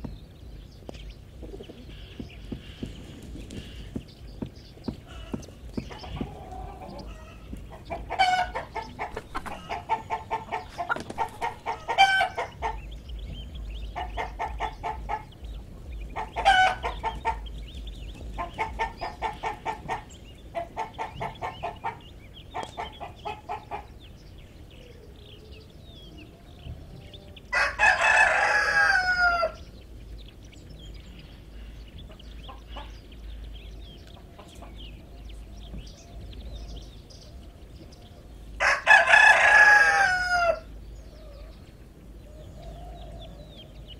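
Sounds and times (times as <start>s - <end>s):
hens clucking: 0.9s - 24.8s, 26.0s - 43.9s
rooster crowing: 27.0s - 29.6s, 38.6s - 40.7s.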